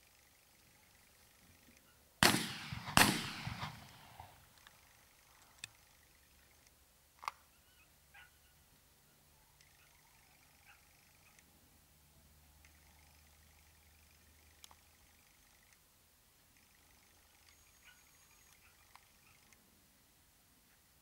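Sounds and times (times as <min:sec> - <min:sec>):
gunshots with echo: 0:02.2 - 0:04.4
faint clicks: 0:03.8 - 0:07.4, 0:12.6 - 0:15.9, 0:16.5 - 0:19.7.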